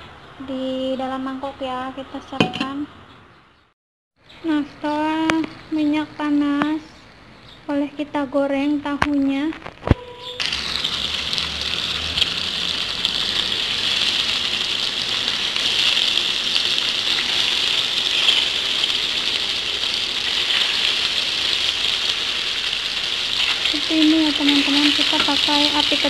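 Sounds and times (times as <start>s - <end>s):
tofu sizzling in hot oil: 10.4s - 26.0s.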